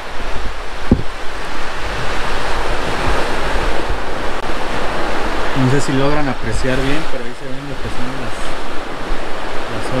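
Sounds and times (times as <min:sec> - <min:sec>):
surf breaking on shore: 0:00.0 - 0:10.0
wind buffeting microphone: 0:00.0 - 0:10.0
short low thump: 0:00.8 - 0:01.2.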